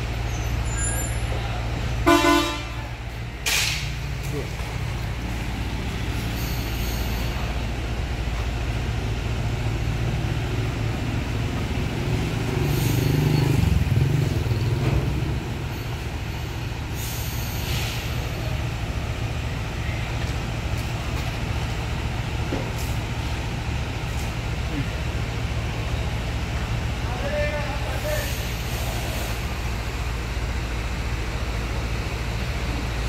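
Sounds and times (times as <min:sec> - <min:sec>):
truck engine running low: 0:00.0 - 0:33.0
motorbike passing: 0:11.0 - 0:15.6
short hisses: 0:17.0 - 0:18.4.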